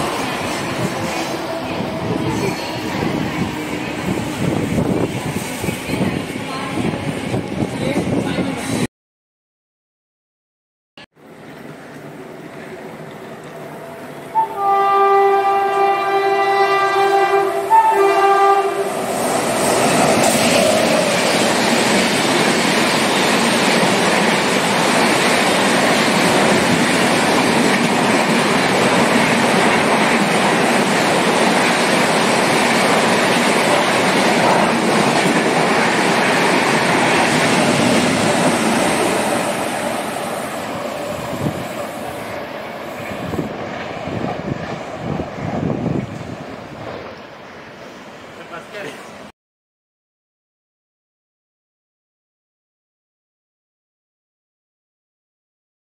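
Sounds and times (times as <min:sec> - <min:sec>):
train wheels roaring on rail: 0:00.0 - 0:08.9, 0:11.2 - 0:49.3
train horn: 0:14.3 - 0:19.1.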